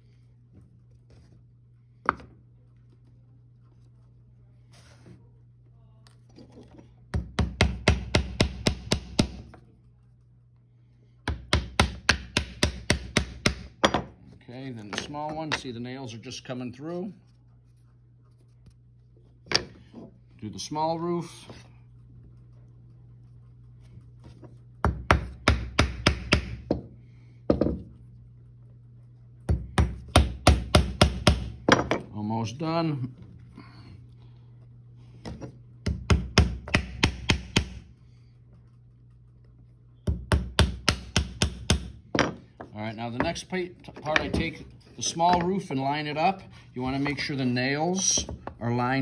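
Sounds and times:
hammer tapping nail into wood: 11.3 - 14.0, 24.8 - 26.9, 35.8 - 37.8, 40.1 - 42.4
hammer driving nails into wood: 24.9 - 26.9.

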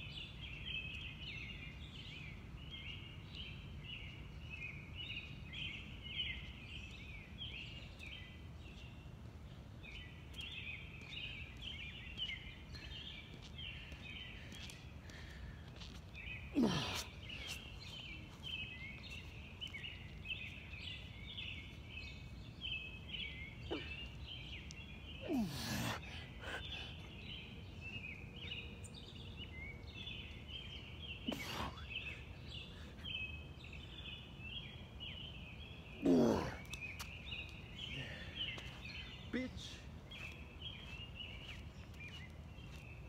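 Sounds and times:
man grunting: 16.6 - 17.0, 25.2 - 26.0, 36.0 - 36.6.

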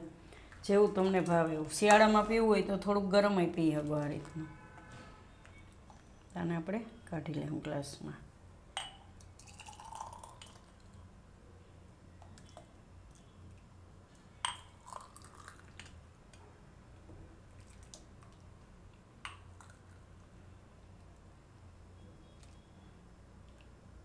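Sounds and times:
low steady hum: 0.0 - 24.0
milk pouring and dripping: 8.8 - 11.0, 14.4 - 16.0, 17.5 - 20.3.

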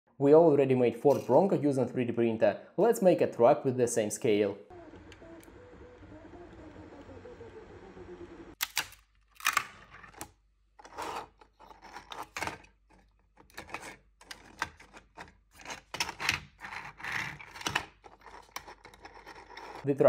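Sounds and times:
plastic pieces clicking: 8.6 - 10.9, 11.6 - 19.8.

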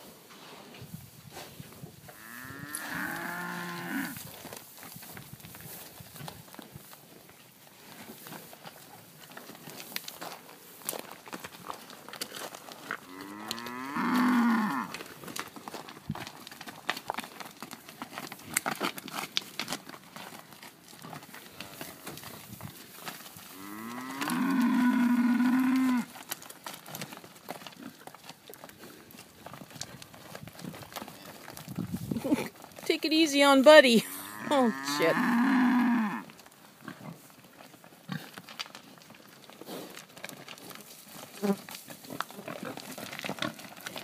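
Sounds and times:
hooves on stony ground: 0.0 - 44.0
cattle mooing: 2.2 - 4.2, 13.0 - 15.0, 23.6 - 26.1, 34.0 - 36.3.

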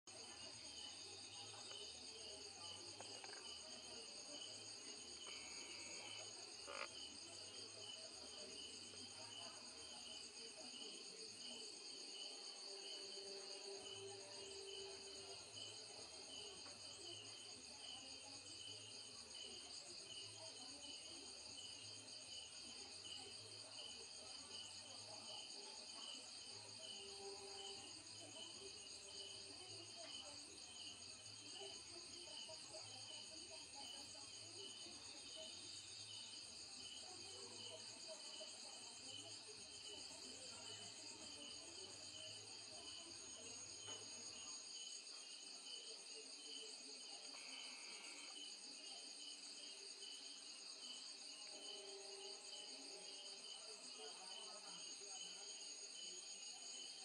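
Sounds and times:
crickets chirring: 4.3 - 9.4.

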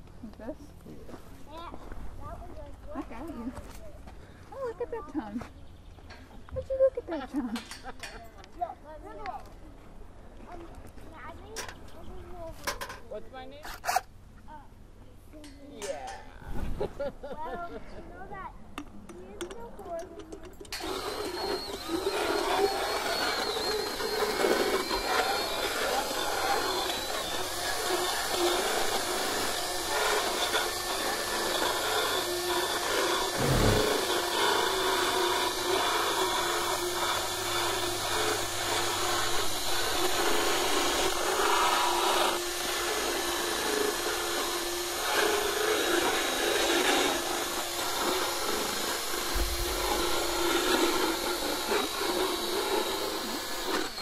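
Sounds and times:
electric whir with grinding rasp: 20.7 - 54.0.

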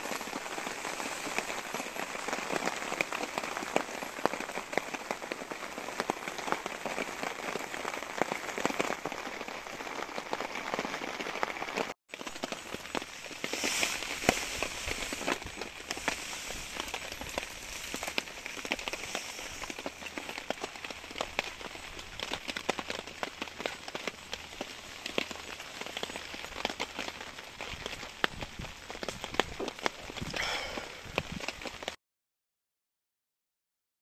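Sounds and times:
heavy rain on a tarp: 0.0 - 32.0.

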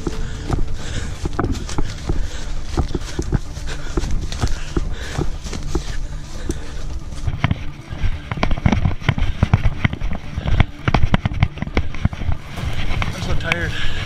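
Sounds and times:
twigs snapping underfoot: 0.0 - 13.8.

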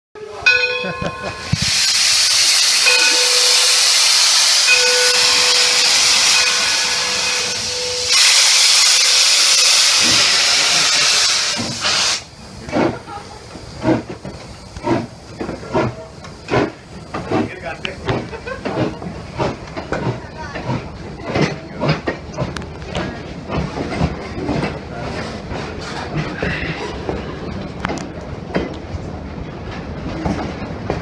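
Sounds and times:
steam hissing from cylinder cocks: 0.3 - 28.3
locomotive exhaust chuffs: 1.0 - 28.1
steam whistle blast: 1.5 - 12.2.

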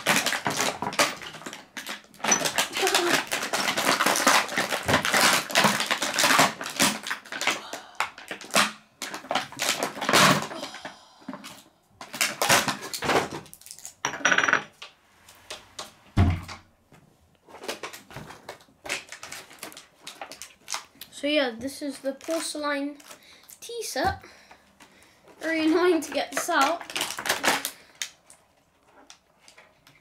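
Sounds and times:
plastic packaging crinkling: 0.0 - 10.5, 12.0 - 14.0, 17.4 - 24.0, 25.2 - 30.0.

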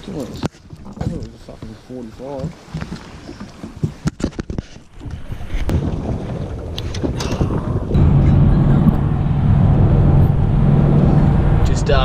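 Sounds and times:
wind on microphone: 4.4 - 12.0
car driving drone from inside: 7.9 - 12.0.

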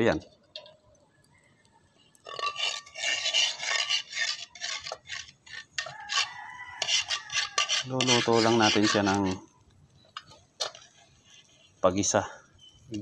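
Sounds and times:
metal ladle scraping a wok: 2.2 - 11.9.

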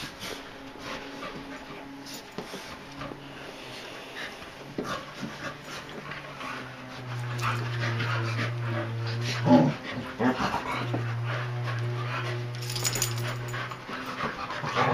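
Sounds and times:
dogs panting and scuffling: 0.0 - 14.9
low steady drone: 0.0 - 14.9.

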